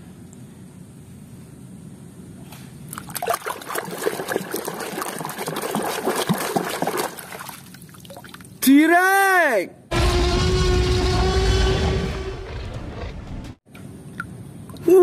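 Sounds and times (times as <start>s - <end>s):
hand splashing in water basin: 2.9s - 8.5s.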